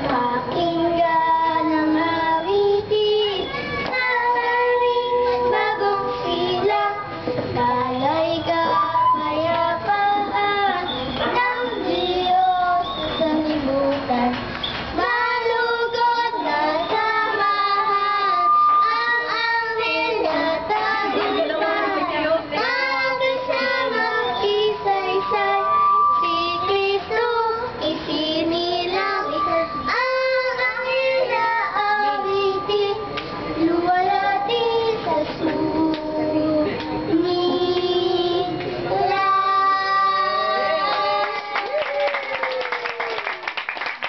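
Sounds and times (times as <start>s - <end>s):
young children singing: 0.0s - 41.8s
music: 4.0s - 13.8s, 15.0s - 38.3s.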